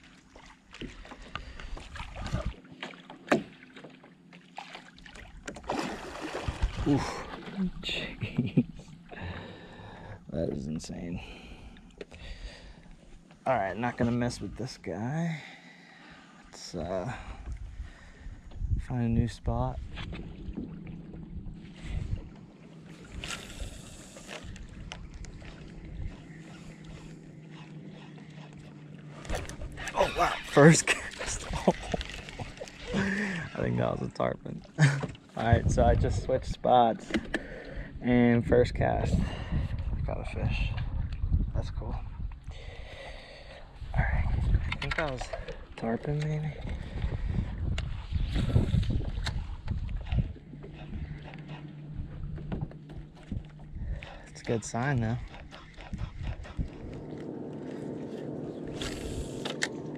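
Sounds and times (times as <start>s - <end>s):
water lapping at boat hull: 0.0s - 15.0s, 19.6s - 35.9s, 40.6s - 59.9s
light knocks against boat: 2.8s - 4.0s, 37.0s - 37.5s, 52.3s - 53.7s
wind noise: 6.4s - 7.2s, 17.1s - 22.3s, 35.4s - 36.6s, 38.3s - 42.8s, 43.8s - 45.4s, 46.5s - 54.3s, 55.1s - 57.2s.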